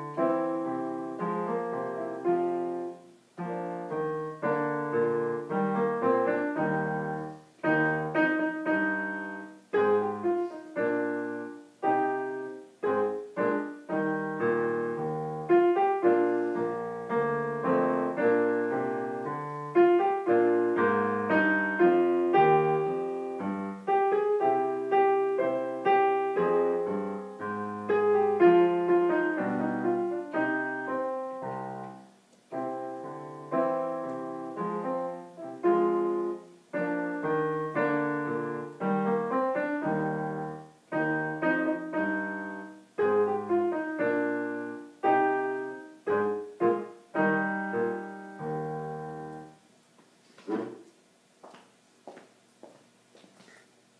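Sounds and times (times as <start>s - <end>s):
piano accompaniment: 0.0s - 49.7s.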